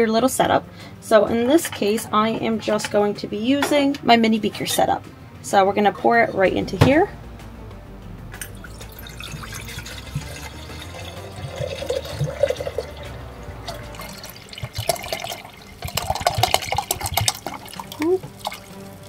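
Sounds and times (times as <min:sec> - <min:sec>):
liquid pouring into a beaker: 0:08.4 - 0:13.1, 0:13.7 - 0:19.0.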